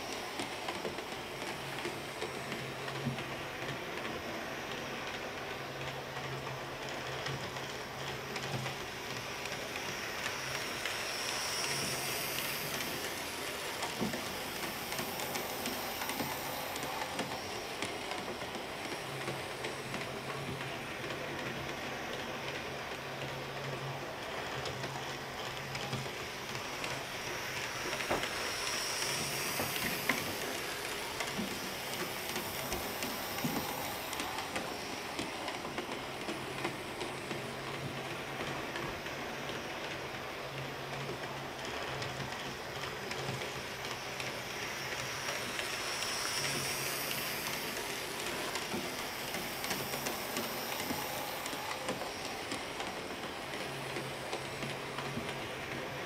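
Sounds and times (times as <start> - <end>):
model train motor whirring: 7.8 - 20.7, 24.1 - 40.6, 41.2 - 56.0.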